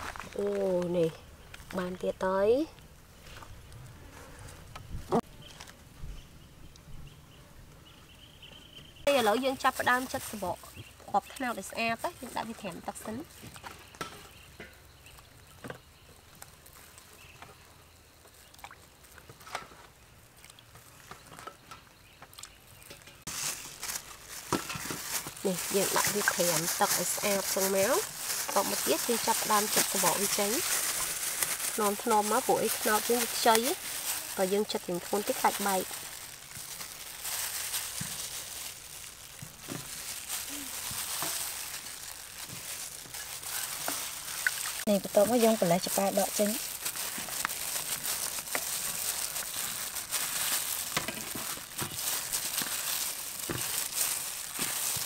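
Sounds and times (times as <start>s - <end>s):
glove crinkling: 0.0s - 1.0s, 22.7s - 55.0s
rustle of handling: 20.6s - 55.0s.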